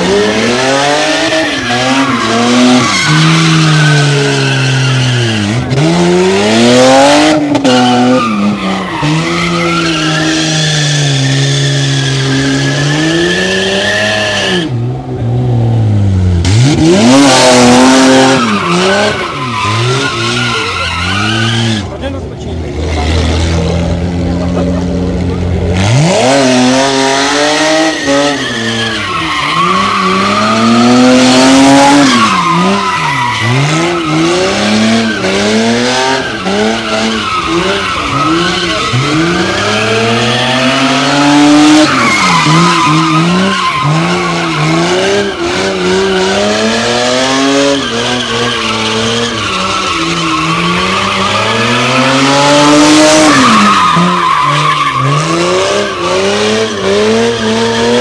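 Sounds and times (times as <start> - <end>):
tyres squealing on concrete: 0.0 - 14.8, 16.6 - 58.0
car engine revving: 0.0 - 58.0.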